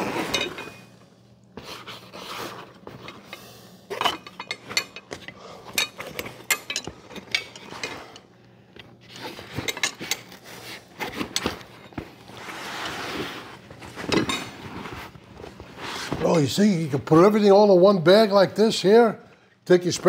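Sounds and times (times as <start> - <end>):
fabric rustling: 12.2 - 16.4.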